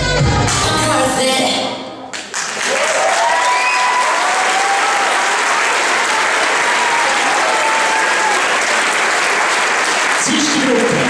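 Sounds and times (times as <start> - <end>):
audience applauding: 2.1 - 11.0
shouted cheers: 2.6 - 9.6.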